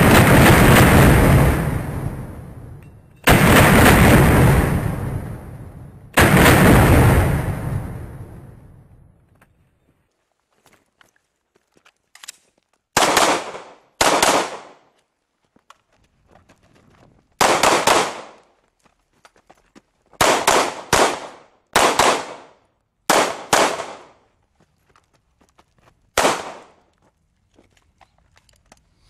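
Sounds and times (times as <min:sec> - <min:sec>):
pistol shots with echo: 0:13.0 - 0:14.8, 0:17.4 - 0:18.4, 0:20.2 - 0:24.2, 0:26.2 - 0:26.8.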